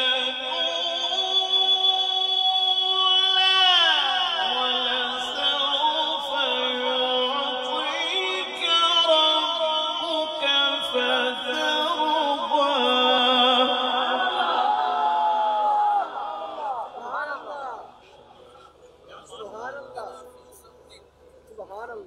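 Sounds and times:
man reciting melodically: 0.0s - 15.2s.

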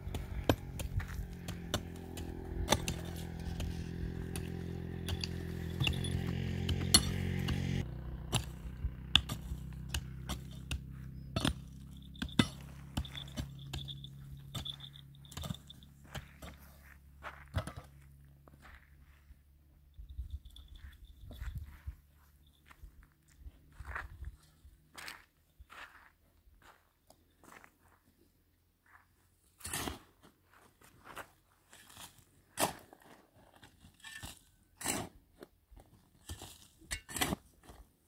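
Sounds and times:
hard objects clinking: 0.1s - 7.6s, 11.4s - 16.0s.

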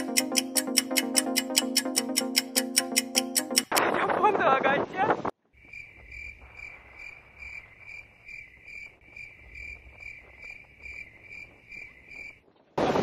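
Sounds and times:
insect chirring: 5.6s - 12.4s.

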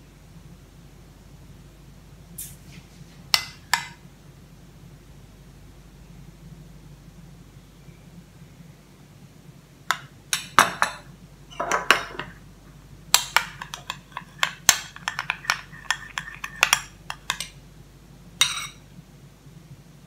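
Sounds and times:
spoon scraping ceramic bowl: 10.4s - 12.4s, 13.2s - 17.6s, 18.4s - 18.8s.

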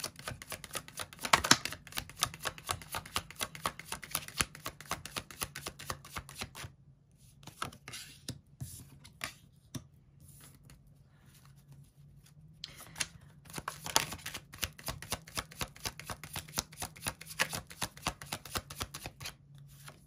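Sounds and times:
cards being shuffled: 0.0s - 6.7s, 12.6s - 20.0s
cards sliding and rustling: 11.4s - 20.0s.

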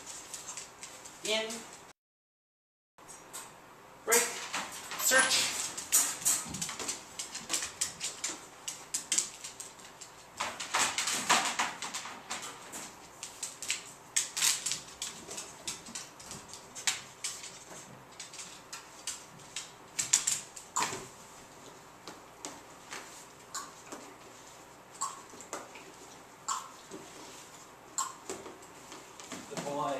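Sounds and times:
dog claws on wooden floor: 4.4s - 20.7s.

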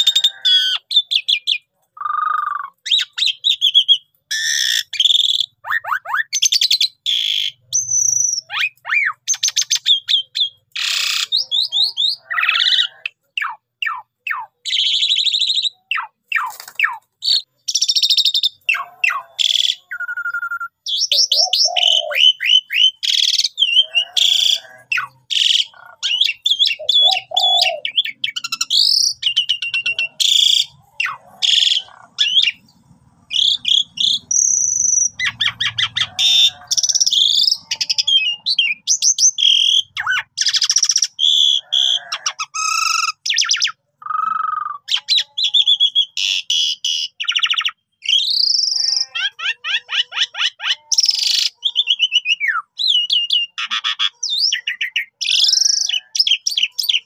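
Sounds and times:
starling singing: 0.0s - 57.0s.

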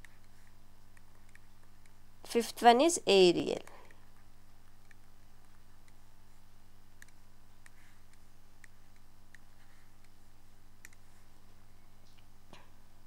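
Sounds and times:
steady low hum: 0.0s - 13.0s
faint sharp clicks: 7.0s - 9.4s, 10.8s - 11.0s.

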